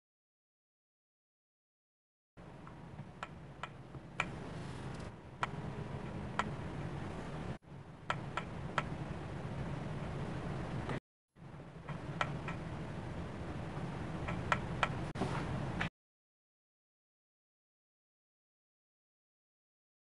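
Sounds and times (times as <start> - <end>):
low steady hum: 2.4 - 15.9.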